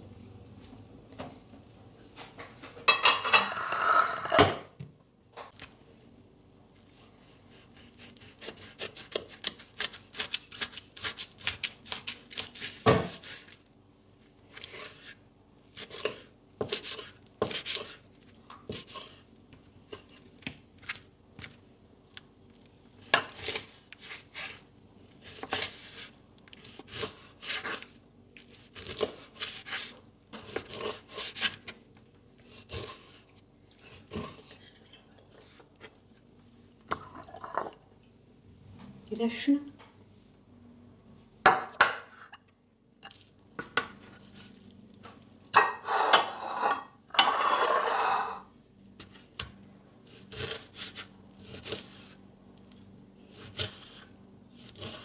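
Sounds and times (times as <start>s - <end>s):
knife slicing meat: 7.5s - 13.6s, 14.5s - 18.0s, 23.3s - 31.8s, 50.0s - 52.2s, 53.3s - 55.0s.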